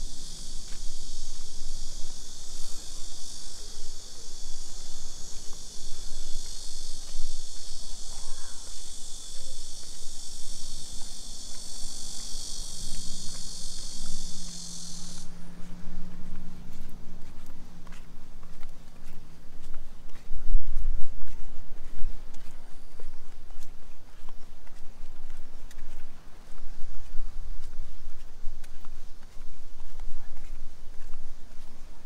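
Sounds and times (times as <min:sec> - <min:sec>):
high-pitched insect chorus: 0:00.0 - 0:18.6.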